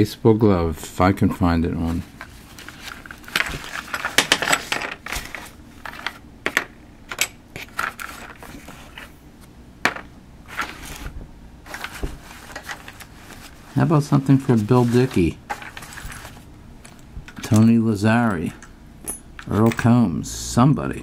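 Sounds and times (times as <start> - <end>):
paper money rustling: 1.8 - 6.2, 7.6 - 9.1, 10.5 - 16.5.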